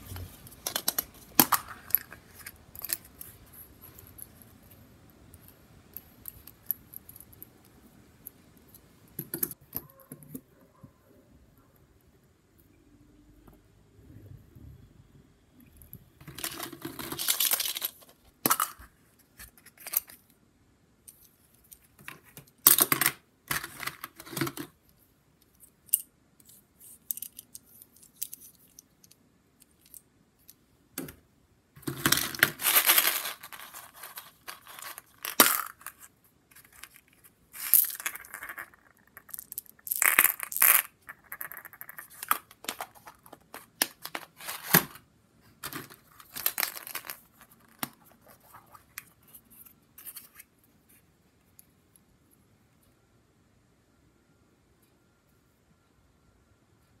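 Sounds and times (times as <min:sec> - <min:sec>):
plastic toys clicking and rattling: 0:16.2 - 0:18.9, 0:31.8 - 0:44.9, 0:45.6 - 0:49.1.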